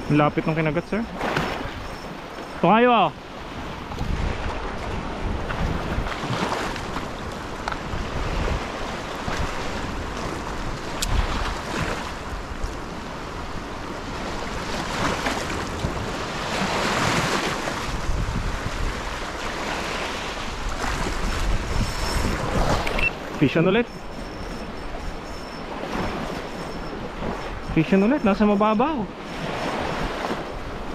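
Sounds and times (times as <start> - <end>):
sea waves washing on shore: 0.0 - 30.9
wind buffeting microphone: 3.2 - 30.9.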